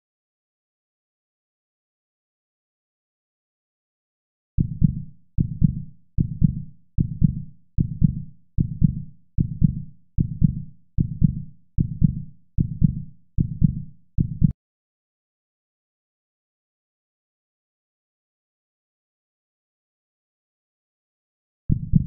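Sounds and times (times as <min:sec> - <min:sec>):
heartbeat double thump: 0:21.7 - 0:22.0.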